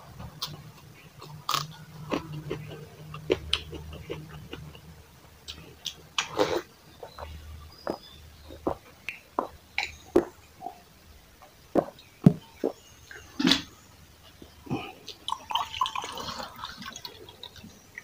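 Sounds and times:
wet chewing clicks and smacks: 0:00.2 - 0:06.4.

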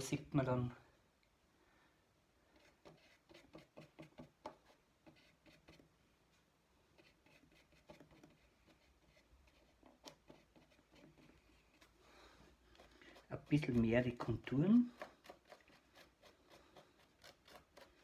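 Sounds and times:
paintbrush tapping and scratching: 0:02.5 - 0:06.0, 0:06.9 - 0:18.0.

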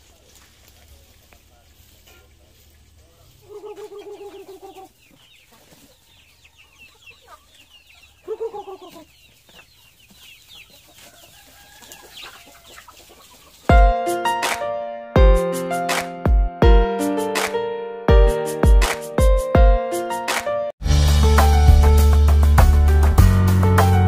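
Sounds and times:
chicks peeping: 0:00.0 - 0:13.9
chickens clucking: 0:00.0 - 0:14.6.

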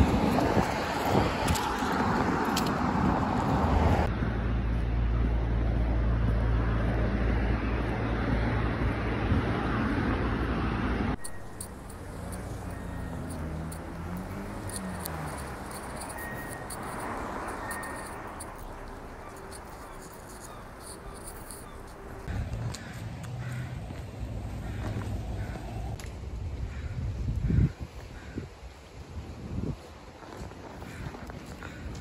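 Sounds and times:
quiet street ambience: 0:00.0 - 0:32.0
street traffic rumble: 0:00.0 - 0:32.0.

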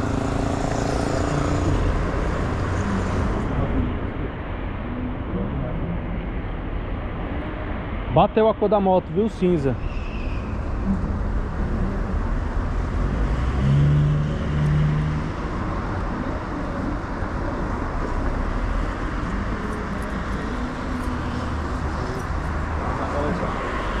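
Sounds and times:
road traffic noise: 0:00.0 - 0:24.0
vehicle passing: 0:09.9 - 0:24.0.

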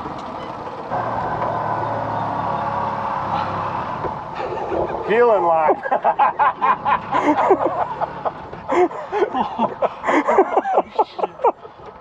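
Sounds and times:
men talking: 0:04.8 - 0:06.4.

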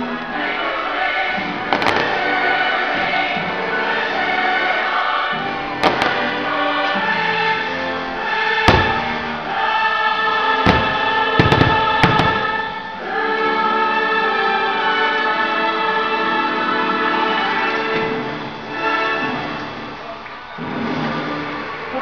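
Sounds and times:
fireworks bursting: 0:00.0 - 0:15.3
choir singing: 0:00.0 - 0:22.0.

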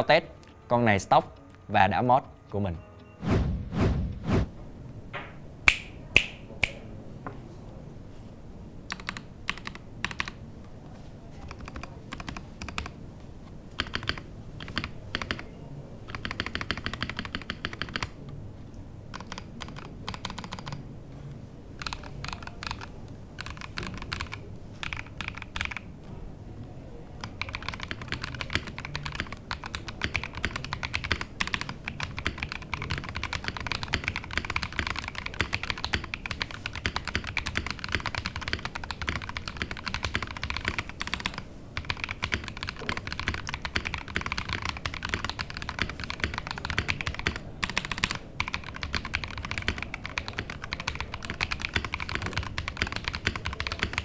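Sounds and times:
mechanical keyboard typing: 0:08.9 - 0:10.4, 0:11.4 - 0:13.0, 0:13.8 - 0:15.5, 0:16.1 - 0:18.2, 0:19.1 - 0:20.8, 0:21.8 - 0:25.9, 0:27.2 - 0:54.0.

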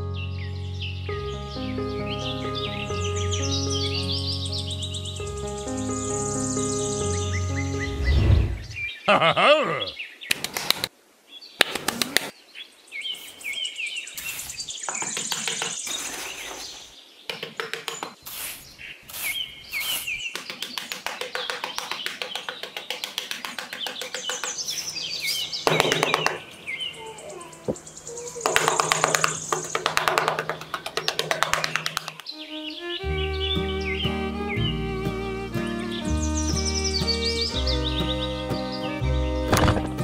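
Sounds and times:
small birds chirping: 0:00.0 - 0:40.0
metal trowel scraping sand: 0:18.2 - 0:20.3.

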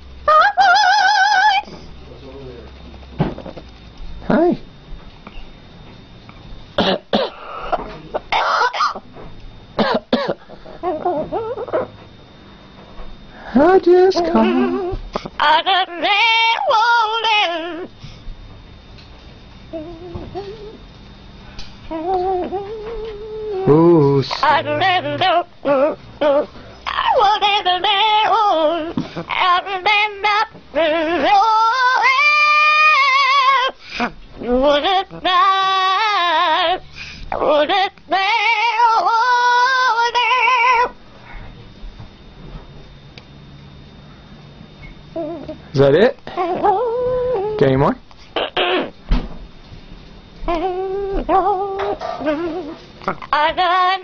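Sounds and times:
parrot singing with vibrato: 0:00.2 - 0:01.7, 0:14.2 - 0:17.9, 0:21.9 - 0:33.8, 0:34.4 - 0:41.0, 0:48.4 - 0:49.0, 0:50.5 - 0:54.0
parrot cough-like calls: 0:06.8 - 0:09.0, 0:09.8 - 0:11.9, 0:48.3 - 0:49.0.

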